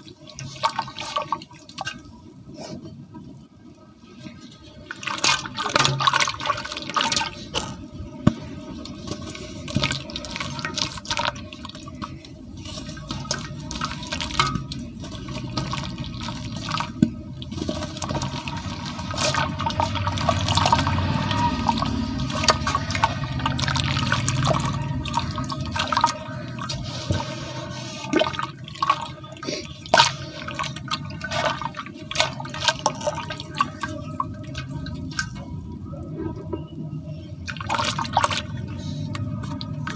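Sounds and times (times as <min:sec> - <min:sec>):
water dripping: 0:04.8 - 0:26.8.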